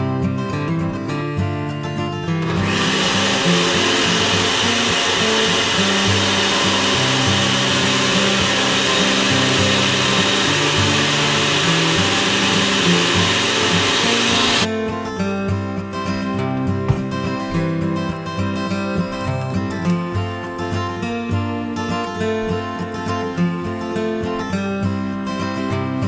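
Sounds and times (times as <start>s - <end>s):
blender running: 2.4s - 14.7s.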